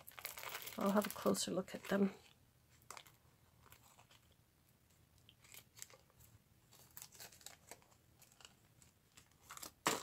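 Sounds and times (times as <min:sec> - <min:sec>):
plastic bag crinkling: 0:00.0 - 0:04.4.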